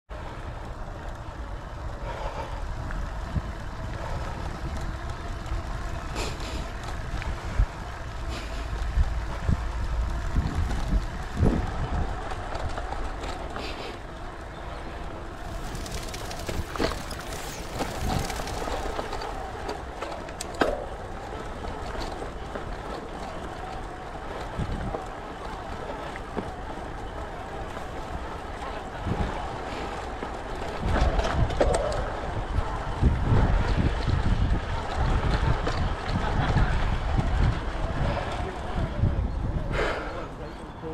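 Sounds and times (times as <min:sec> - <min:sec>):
bike low rumble: 0:00.1 - 0:40.9
bike knocks and rattles: 0:15.4 - 0:21.2.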